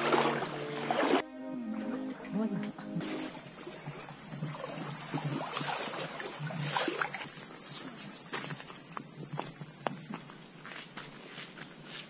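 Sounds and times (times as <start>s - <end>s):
wading through shallow water: 0.0s - 2.3s, 3.0s - 10.3s
high-pitched insect drone: 0.0s - 10.3s.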